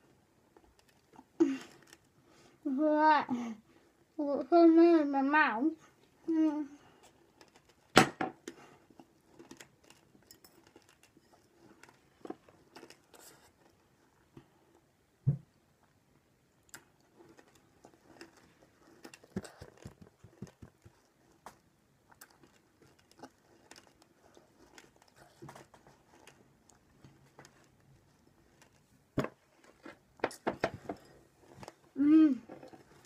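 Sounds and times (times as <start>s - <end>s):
candy crunching while chewed: 0.5s - 2.2s, 6.9s - 14.3s, 16.6s - 32.0s.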